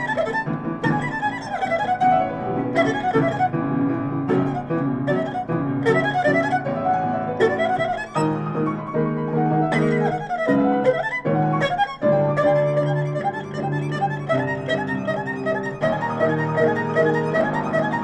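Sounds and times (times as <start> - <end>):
erhu melody: 0.0 - 18.0
piano chords: 0.0 - 18.0.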